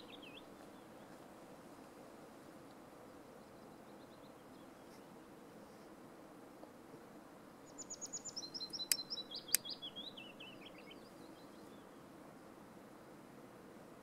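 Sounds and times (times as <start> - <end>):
songbird singing: 0.0 - 1.2, 7.6 - 12.0
faint background hiss: 0.0 - 14.0.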